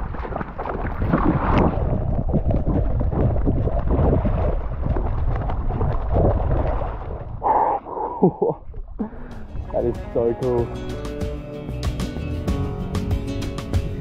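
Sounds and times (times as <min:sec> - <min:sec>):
wind buffeting microphone: 0:00.0 - 0:07.5
shallow water splashing: 0:00.0 - 0:10.4.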